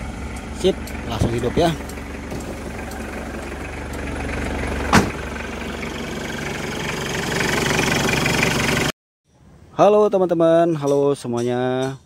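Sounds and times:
diesel engine idling: 0.0 - 8.9
engine knock: 0.7 - 8.9.

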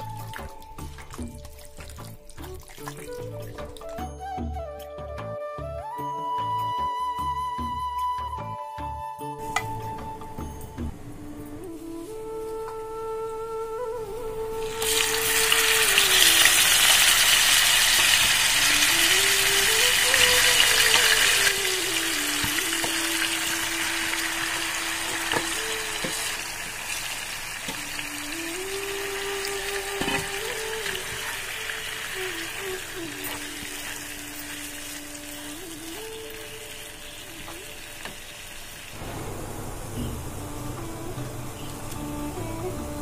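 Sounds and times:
soft flute melody: 0.0 - 43.0
chicken sizzling in hot oil: 14.6 - 43.0.

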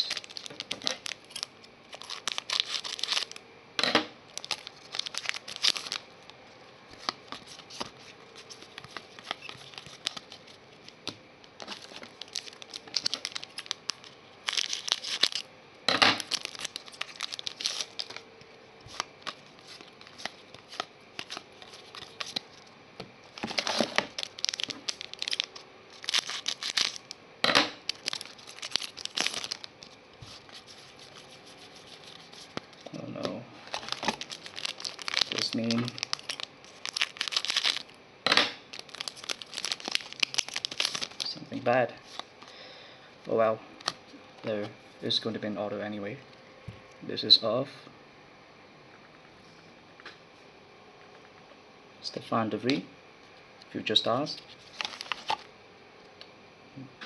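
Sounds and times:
foil wrapper crinkling and tearing: 0.0 - 3.4, 4.3 - 15.5, 16.1 - 18.2, 18.8 - 22.6, 23.2 - 38.0, 38.7 - 42.6, 54.3 - 55.5.

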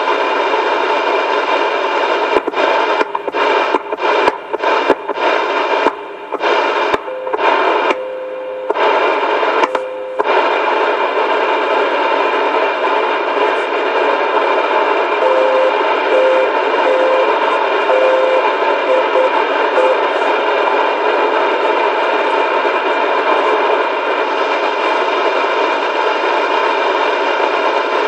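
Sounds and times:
radio static hiss: 0.0 - 28.0
short low beeps: 7.0 - 8.8, 9.8 - 10.2, 15.2 - 20.0
clicks: 9.6 - 10.3.

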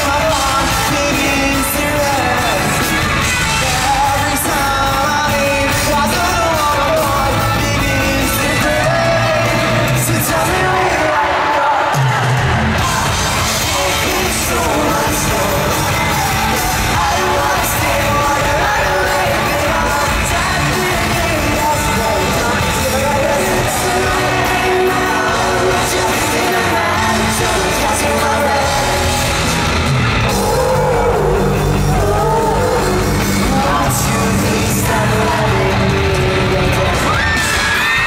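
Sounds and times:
live rock band: 0.0 - 38.0
person singing lead vocal: 0.0 - 38.0.

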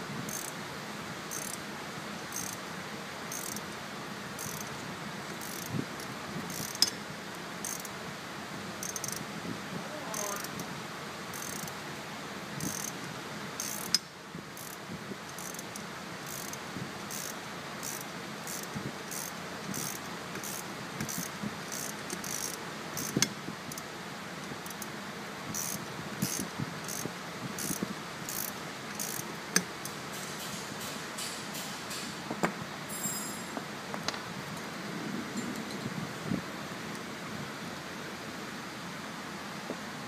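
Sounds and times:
ratchet wrench clicking: 0.3 - 0.5, 1.3 - 1.6, 2.3 - 2.6, 3.3 - 3.6, 4.4 - 4.7, 5.3 - 5.7, 6.5 - 7.0, 7.6 - 7.9, 8.8 - 9.2, 11.3 - 11.7, 12.6 - 13.0, 13.6 - 14.0, 14.6 - 23.8, 24.6 - 24.9, 25.5 - 32.1
sharp metal clinks: 32.9 - 33.6.

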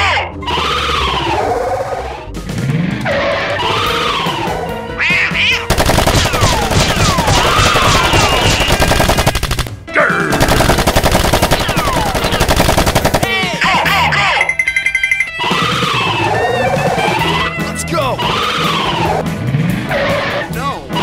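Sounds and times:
machine-gun sound effect: 5.7 - 9.7, 10.3 - 13.6.

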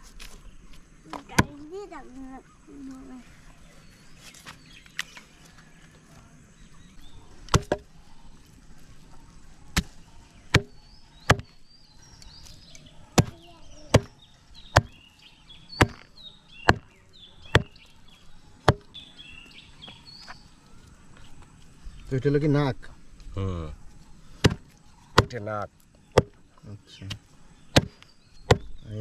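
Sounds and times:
heavy blade chopping: 7.5 - 7.9, 10.5 - 11.6, 13.2 - 14.1, 14.7 - 15.0, 15.8 - 17.8, 18.6 - 18.9, 24.4 - 25.4, 26.2 - 26.4, 27.7 - 28.7.

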